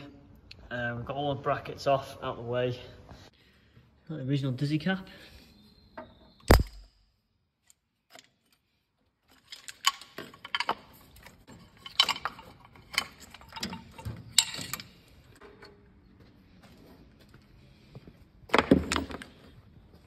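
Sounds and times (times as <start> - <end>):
small metallic clicks and clinks: 9.3 - 15.9.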